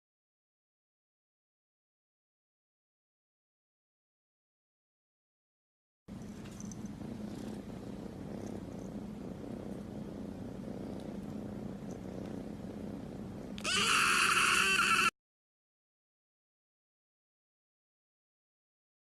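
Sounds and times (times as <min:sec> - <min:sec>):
kitten purring: 0:06.1 - 0:14.5
loud high kitten meow: 0:13.6 - 0:15.1.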